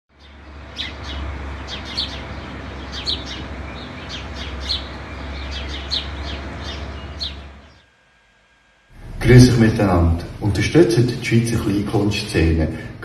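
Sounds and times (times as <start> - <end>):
small birds chirping: 0.1 - 8.0
steady low rumble: 8.9 - 13.0.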